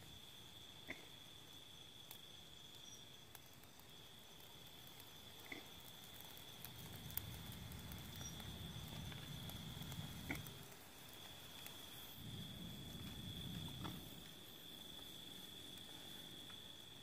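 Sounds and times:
night insects chirring: 0.0 - 17.0
low rumble: 12.1 - 14.4.

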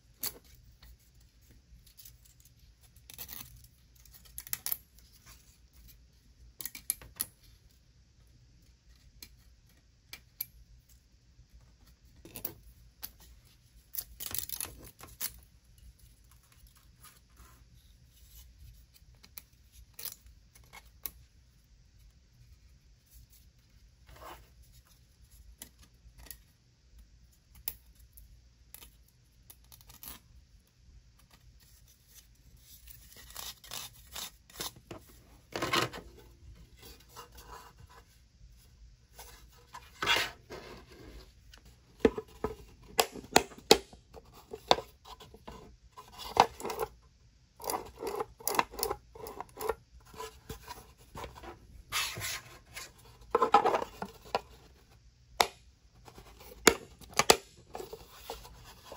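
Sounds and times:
plastic scraping on plastic: 34.6 - 38.0, 39.1 - 46.9, 47.6 - 54.7.

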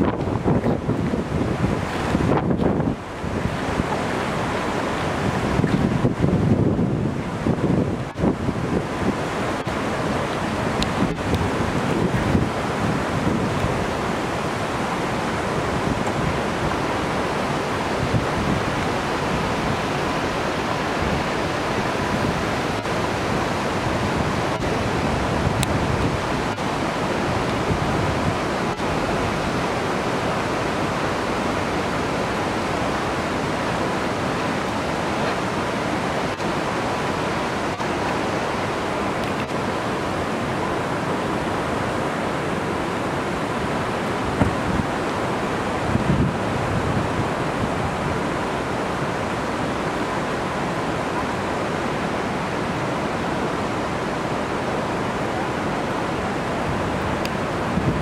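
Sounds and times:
waterfalls rushing: 0.0 - 58.0
wind on microphone: 0.0 - 58.0.

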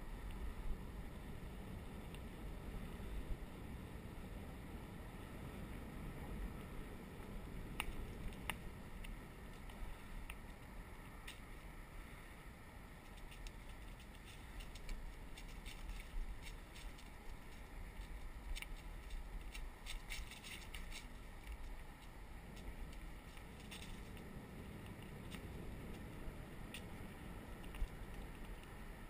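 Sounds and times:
bicycle tyre and wind rumble: 0.0 - 29.0
small ticks: 2.0 - 2.3, 6.6 - 11.8, 12.9 - 29.0.

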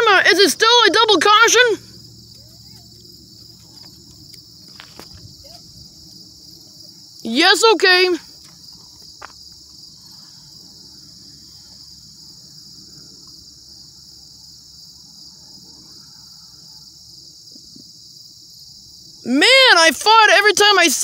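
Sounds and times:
insects droning: 0.0 - 21.0.

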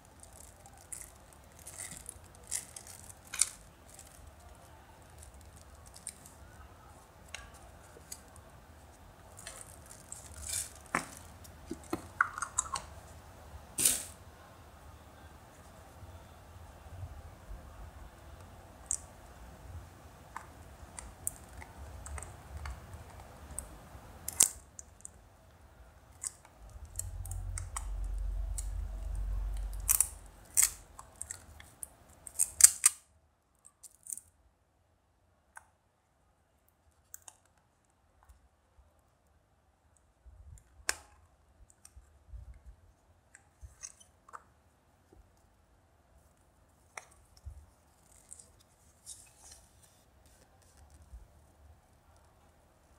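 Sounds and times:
low handling rumble: 26.7 - 30.4.

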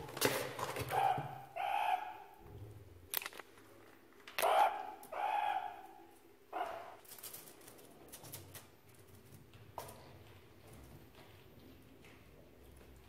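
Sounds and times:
meerkat calls: 0.8 - 2.4, 4.4 - 7.0.

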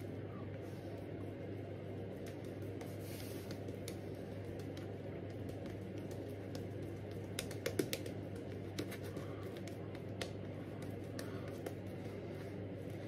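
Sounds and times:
low steady hum: 0.0 - 13.0
shaving brush clicking and crackling: 3.5 - 11.8.

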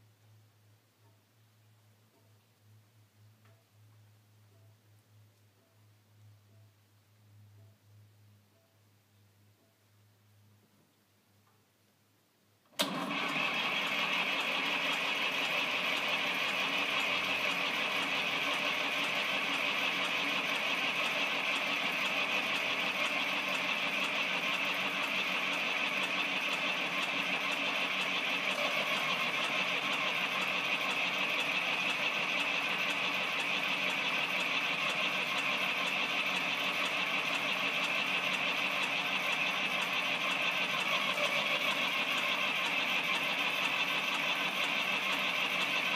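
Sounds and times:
tractor diesel engine idling: 12.8 - 45.9.

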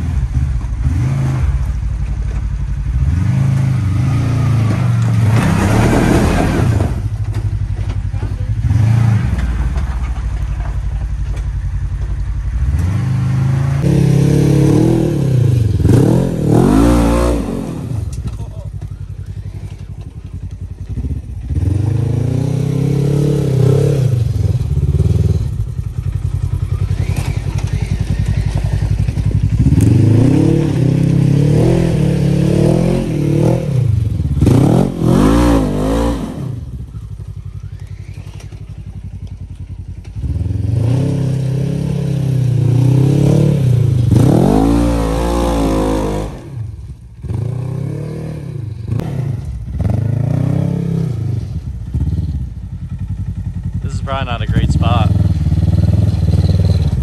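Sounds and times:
engine revving: 0.0 - 1.9, 2.8 - 10.3, 12.4 - 57.0.

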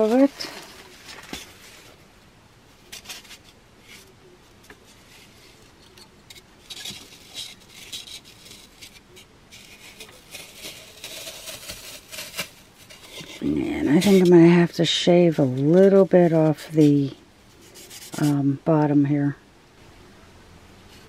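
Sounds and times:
foam scraping against pot rim: 0.0 - 0.8, 6.4 - 18.5.

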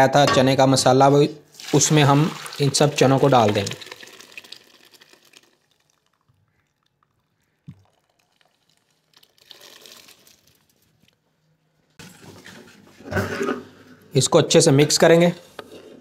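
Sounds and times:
chickpeas and water pouring: 1.5 - 11.1.

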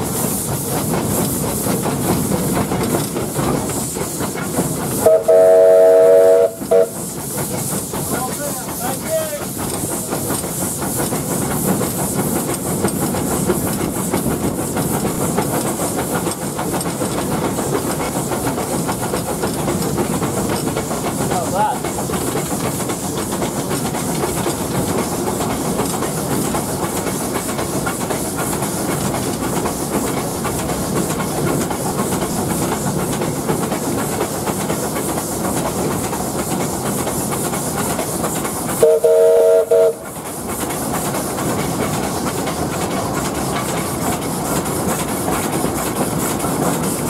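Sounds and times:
steam locomotive running on rails: 0.0 - 47.0
steam whistle blast: 5.0 - 7.0, 38.8 - 40.0.

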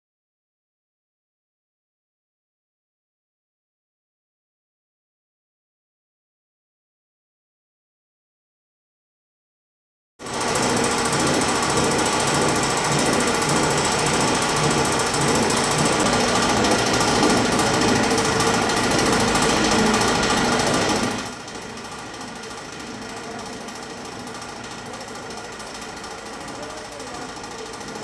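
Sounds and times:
metal fans rattling: 10.3 - 28.0.

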